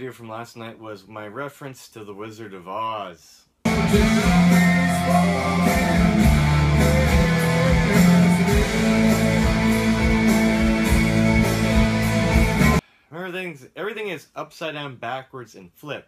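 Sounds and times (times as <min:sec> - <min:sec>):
deep bass notes: 0:03.7 - 0:12.8
electric guitar: 0:03.7 - 0:12.8.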